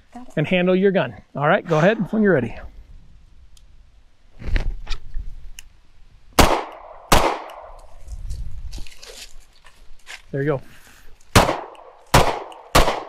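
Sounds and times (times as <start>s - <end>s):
handgun shots with echo: 6.4s - 7.7s, 11.4s - 13.0s.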